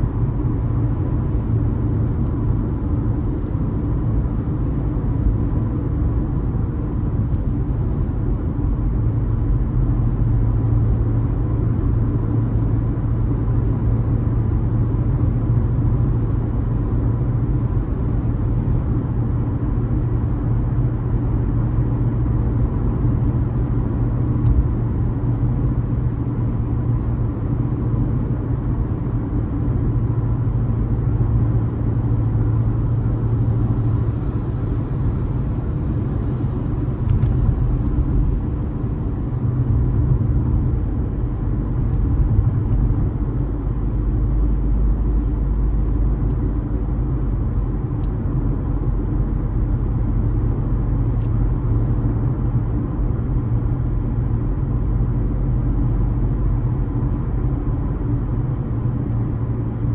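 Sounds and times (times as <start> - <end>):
car engine and tyre rumble: 0.0 - 59.9.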